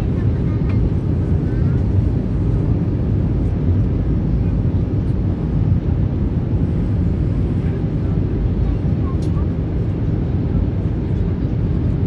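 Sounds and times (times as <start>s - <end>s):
airliner cabin engine rumble: 0.0s - 12.0s.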